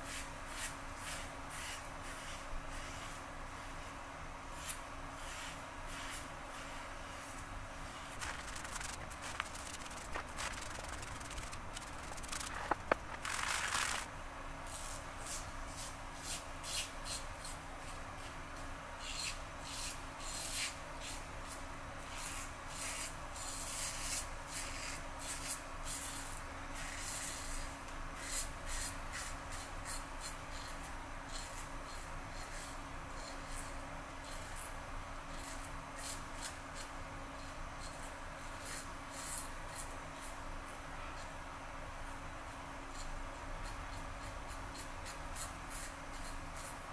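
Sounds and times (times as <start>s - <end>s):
razor rasping through stubble: 0.1s - 3.7s, 4.5s - 7.4s, 8.0s - 14.1s, 28.2s - 34.7s, 42.9s - 46.8s
brief rush: 8.2s - 14.1s.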